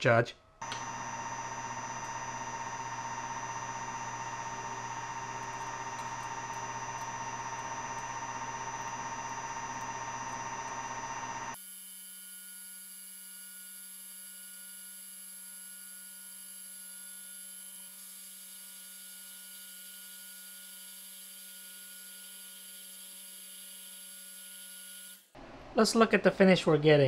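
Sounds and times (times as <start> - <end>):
high steady whining tones: 0.6 - 11.6
lathe motor and spindle hum: 0.6 - 11.6.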